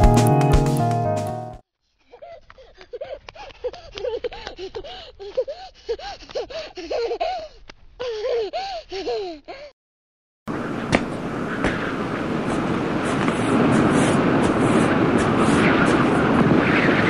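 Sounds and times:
person panting hard: 2.0 - 9.7.

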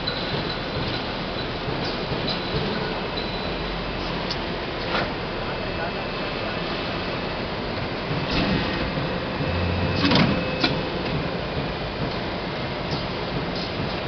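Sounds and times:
production line machine noise: 0.0 - 14.0
low hum: 5.3 - 12.1
press clanking: 8.1 - 12.2.

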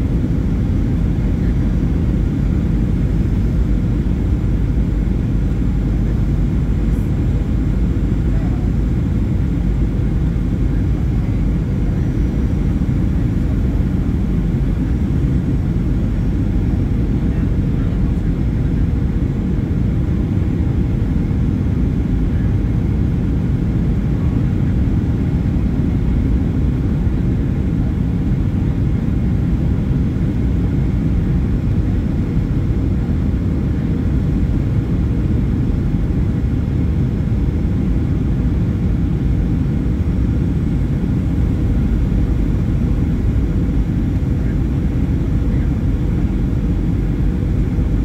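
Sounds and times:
faint steady hum: 0.0 - 48.0
jet engine and air rumble: 0.0 - 48.0.

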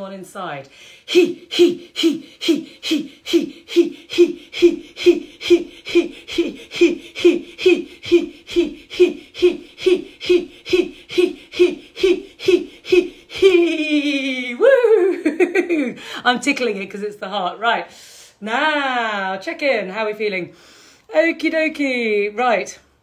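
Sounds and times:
woman breathy chanting: 0.6 - 14.7.

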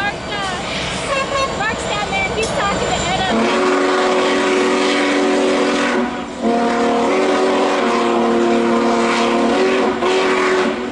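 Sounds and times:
steam hissing: 0.0 - 10.9
steam whistle blowing: 3.2 - 10.9.

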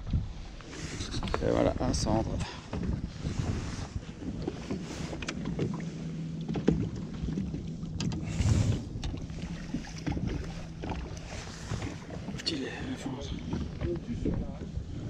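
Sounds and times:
boat engine humming: 0.0 - 15.0
water noise: 0.0 - 15.0
wind: 0.0 - 15.0
fishing rod and fish knocking on hull: 2.7 - 3.0, 6.4 - 8.3, 8.9 - 14.7.

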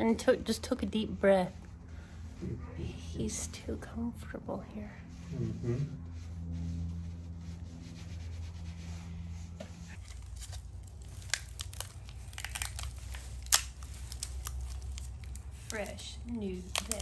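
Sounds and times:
steady low hum: 0.0 - 16.8
plastic packaging crinkling and tearing: 9.9 - 17.0.

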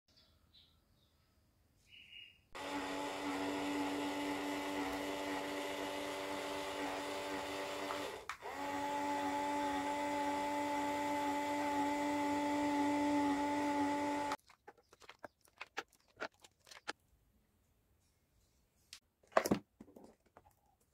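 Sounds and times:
small electric motor whirring: 2.6 - 14.4.

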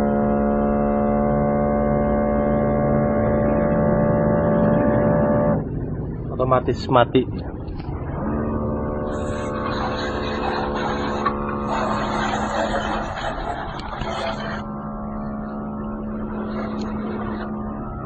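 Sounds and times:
electric pump humming: 7.0 - 18.0.

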